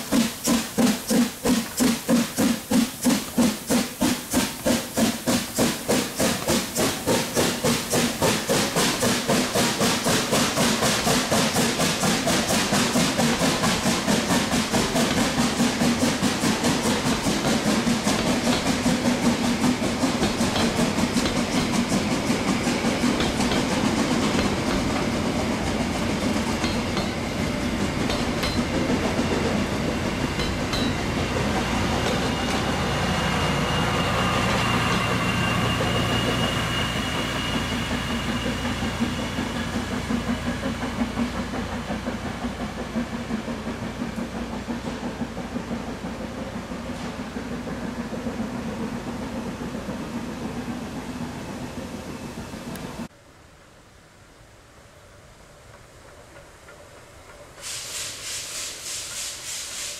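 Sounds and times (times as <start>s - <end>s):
wheels clacking over rail joints: 0.0s - 50.8s
steam locomotive exhaust chuffs: 0.0s - 53.1s, 55.6s - 59.9s
high wheel squeal: 26.5s - 40.5s.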